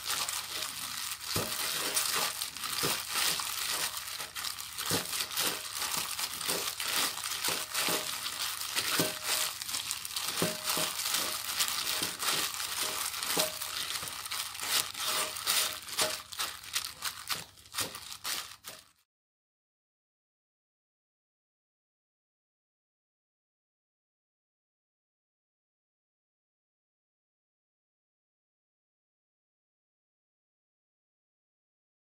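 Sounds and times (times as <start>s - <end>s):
plastic gloves crinkling: 0.0s - 19.0s.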